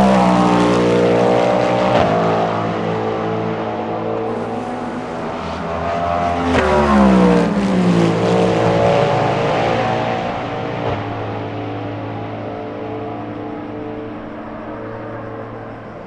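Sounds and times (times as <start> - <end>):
racing car engine passing: 0.0 - 16.0.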